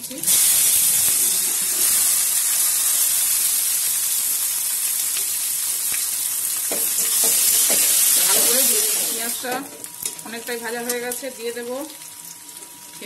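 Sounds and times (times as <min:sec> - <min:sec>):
onion sizzling in hot oil: 0:00.0 - 0:13.0.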